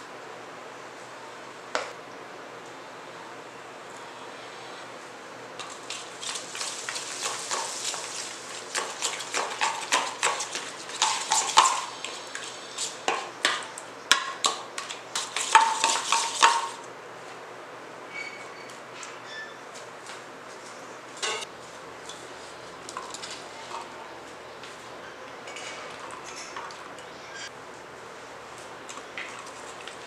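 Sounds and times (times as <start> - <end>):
spoon stirring in metal bowl: 5.6 - 16.8.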